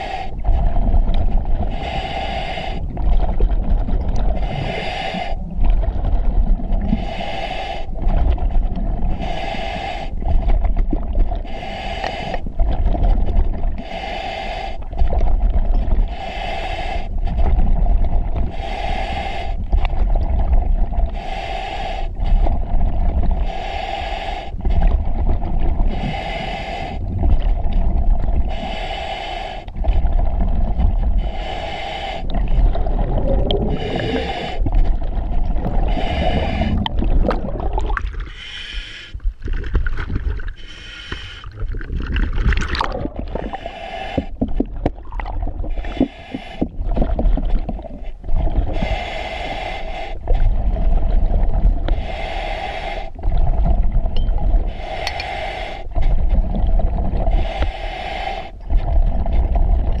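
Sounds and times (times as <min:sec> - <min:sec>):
hissing regulator inhale: 0:00.0 - 0:03.3, 0:04.3 - 0:05.9, 0:06.7 - 0:39.3, 0:40.4 - 0:41.6, 0:43.1 - 0:44.8, 0:45.6 - 0:53.7, 0:54.5 - 0:59.7
exhaled bubbles rumbling: 0:00.0 - 0:13.9, 0:14.8 - 0:16.2, 0:17.1 - 0:21.2, 0:22.2 - 0:23.5, 0:24.6 - 0:28.8, 0:29.7 - 0:38.4, 0:39.1 - 0:40.7, 0:41.4 - 0:49.1, 0:50.2 - 0:52.2, 0:53.1 - 0:57.7, 0:58.6 - 1:00.0
steady hum: 0:00.0 - 0:41.6.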